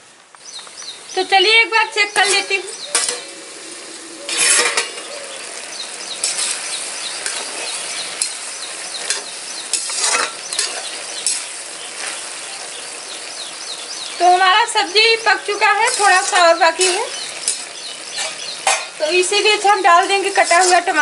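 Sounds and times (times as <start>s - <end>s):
curry sizzling: 0.0s - 21.0s
metal spatula scraping pan: 2.1s - 12.2s, 15.4s - 19.0s, 19.6s - 21.0s
pan lid clatter: 4.3s - 5.2s, 9.1s - 11.4s, 15.9s - 19.0s
metal clinks on pan: 15.9s - 19.0s.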